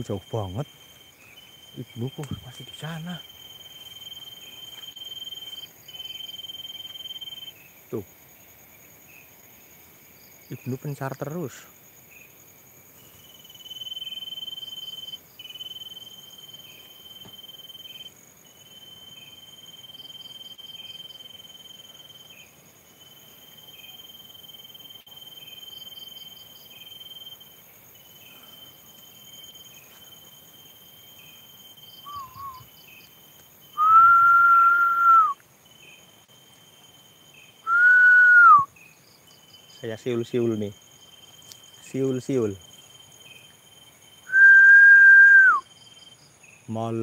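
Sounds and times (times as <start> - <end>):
crickets chirping: 0.0 - 47.0
man whistling: 32.1 - 32.7, 33.8 - 35.4, 37.7 - 38.7, 44.3 - 45.6.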